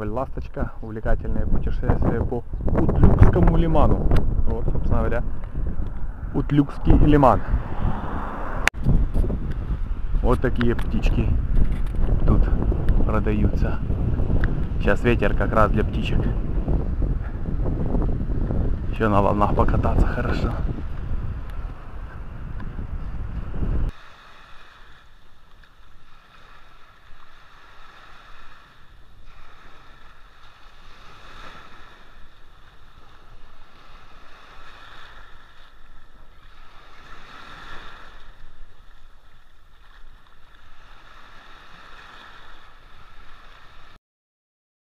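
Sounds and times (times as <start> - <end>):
wind rumble on microphone: 0.0 - 44.0
small waves breaking on sand: 20.4 - 44.0.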